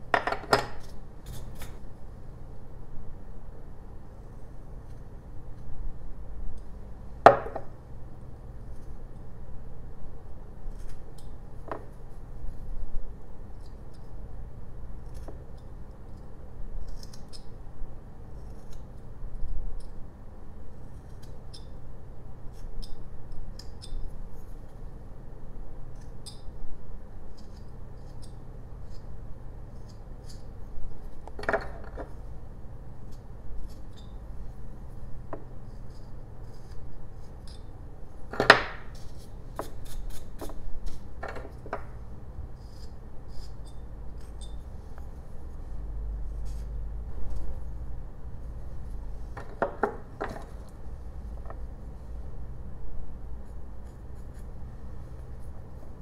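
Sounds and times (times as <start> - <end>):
knife scraping wood: 35.7 - 37.7, 38.5 - 41.9, 42.6 - 45.1.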